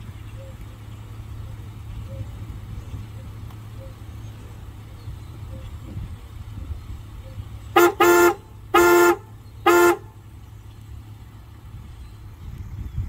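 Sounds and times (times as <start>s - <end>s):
car horn honks: 7.7s - 10.2s.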